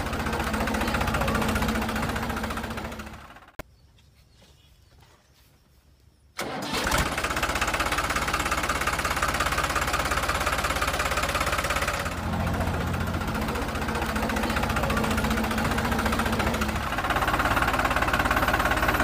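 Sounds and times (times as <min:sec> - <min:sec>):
tractor engine chugging: 0:00.0 - 0:03.6, 0:06.4 - 0:19.0.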